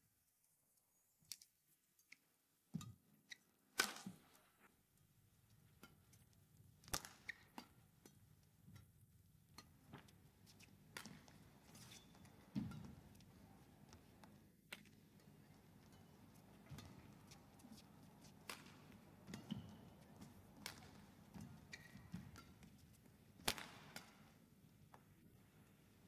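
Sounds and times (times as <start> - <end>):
racket striking shuttlecock: 6.8 - 7.8, 16.6 - 22.7, 23.4 - 24.3
shoe squeaks: 21.6 - 22.2.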